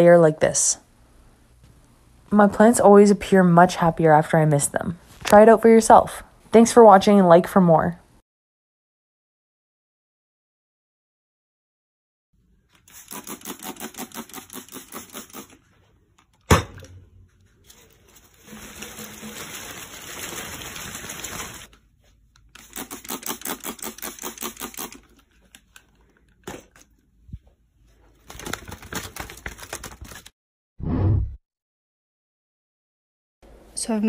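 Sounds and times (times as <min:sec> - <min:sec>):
houseplant leaves rustling: 0:17.6 - 0:21.8.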